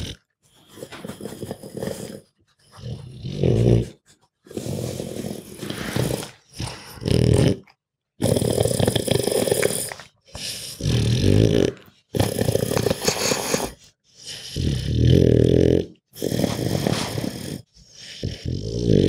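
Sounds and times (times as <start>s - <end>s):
dog groaning and breathing heavily: 0.0s - 19.0s.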